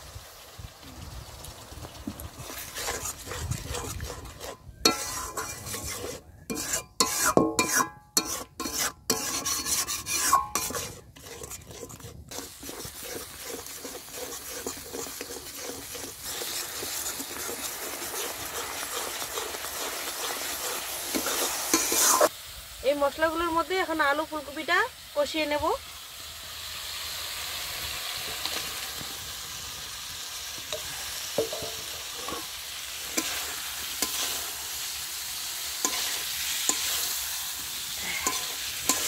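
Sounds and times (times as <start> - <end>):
paste sizzling: 2.0 - 22.3, 25.9 - 39.0
metal spatula scraping a pan: 2.4 - 22.3, 30.7 - 39.0.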